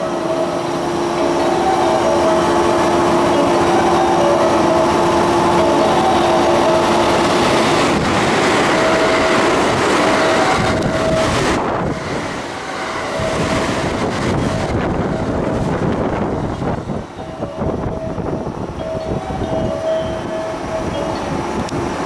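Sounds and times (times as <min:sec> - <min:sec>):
train wheels rolling on rail: 0:00.0 - 0:22.0.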